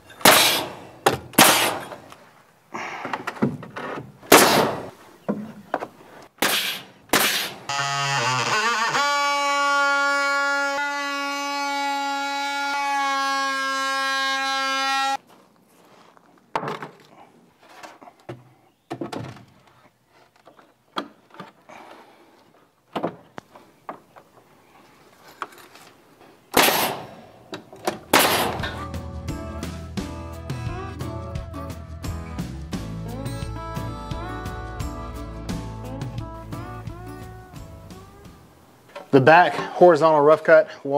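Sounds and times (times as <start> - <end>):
wooden knocks and thuds: 3.1 - 6.0, 16.5 - 17.1, 18.3 - 19.8, 22.9 - 24.2
guitar music: 28.4 - 38.6
held musical note: 28.6 - 38.2.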